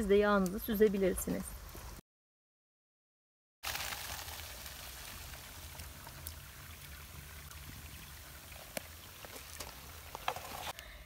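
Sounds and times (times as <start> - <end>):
hot fat pouring and foaming: 3.6 - 10.8.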